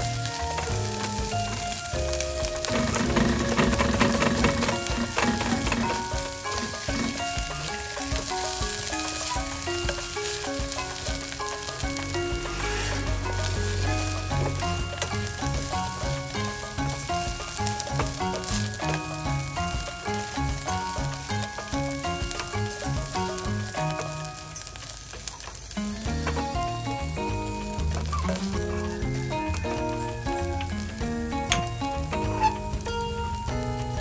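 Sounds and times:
fish sizzling in a pot: 0.0s - 34.0s
light background music: 0.0s - 34.0s
wooden spatula scraping and knocking: 0.3s - 24.1s.

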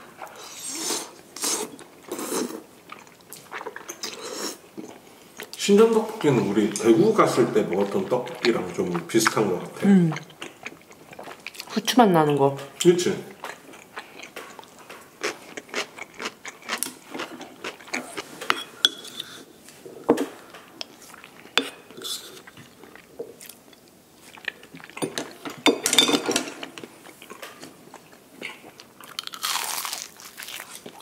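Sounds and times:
biting and chewing food: 6.8s - 9.5s, 13.4s - 18.3s, 26.5s - 31.0s.

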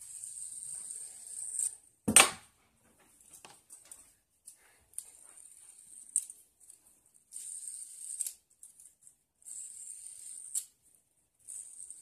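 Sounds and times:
fidget spinner whirring: 0.0s - 1.9s, 4.9s - 12.0s.

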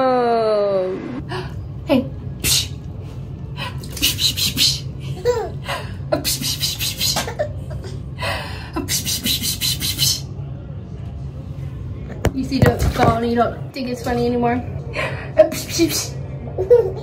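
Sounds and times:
baby giggling: 5.1s - 5.6s, 7.1s - 8.0s.

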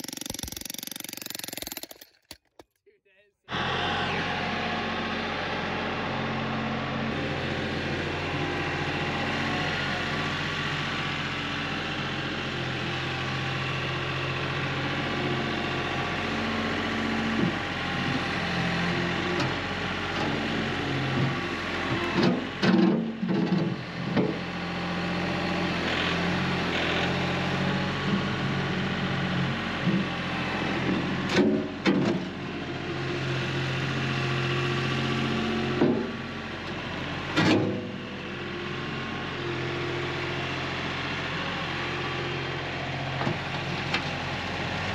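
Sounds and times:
diesel tractor engine running: 3.5s - 22.6s.

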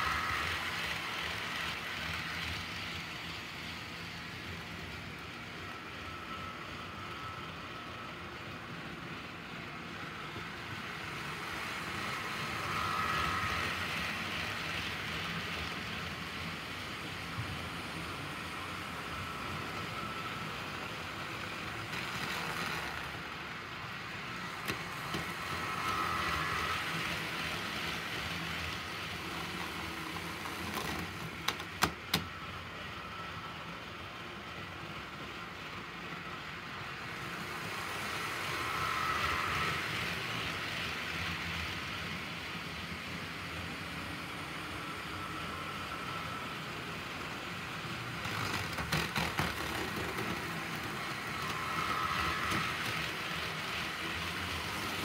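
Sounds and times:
model trains whirring on track: 0.0s - 55.0s.

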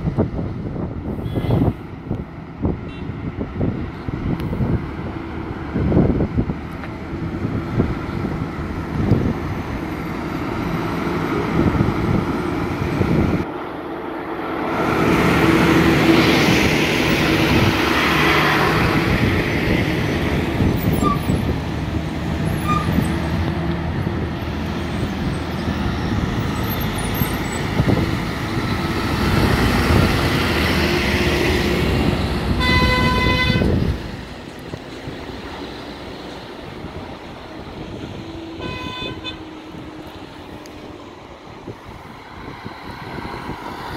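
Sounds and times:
wind noise: 0.0s - 13.6s, 14.2s - 43.9s
vehicle horn: 1.2s - 1.7s, 2.9s - 3.1s, 32.6s - 33.8s, 38.6s - 39.5s.

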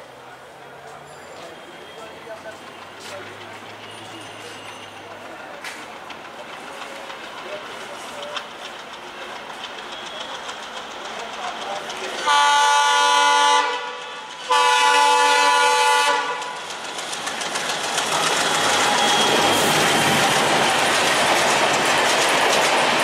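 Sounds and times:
train rumble and wheel clatter: 0.0s - 23.0s
locomotive air horn: 12.3s - 16.6s.

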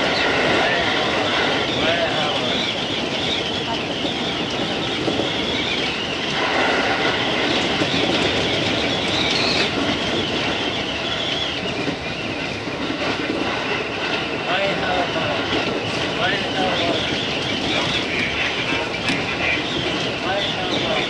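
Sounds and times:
train wheels rolling on rails: 0.0s - 21.0s
high wheel squeal: 0.1s - 12.6s.

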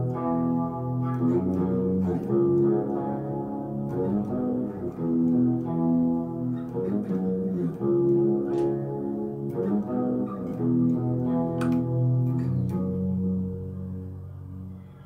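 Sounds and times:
electric guitar ringing notes: 0.0s - 15.0s.

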